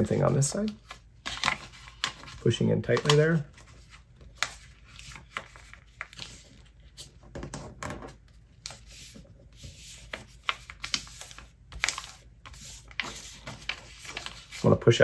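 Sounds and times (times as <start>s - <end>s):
paper crackling and rustling: 0.0s - 15.0s.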